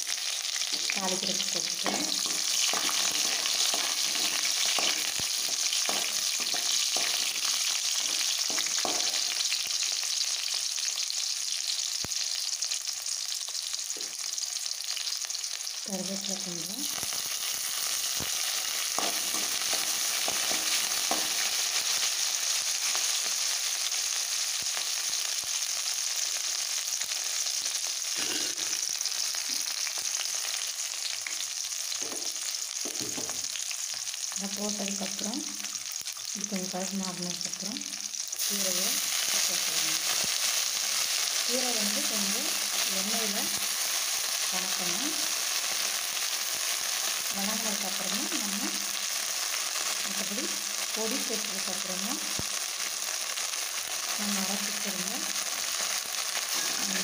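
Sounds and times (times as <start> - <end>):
vegetables sizzling in hot oil: 0.0 - 57.0
metal spoon scraping a pan: 1.8 - 9.5.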